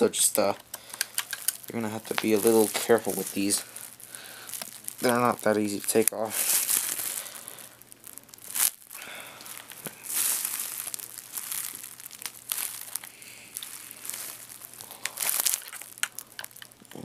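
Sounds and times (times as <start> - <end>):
sharp clicks: 0.4 - 1.7.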